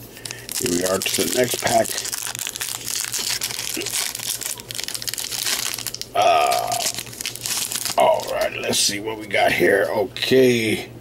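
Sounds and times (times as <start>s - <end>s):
wrapper crinkling and tearing: 0.1s - 8.7s.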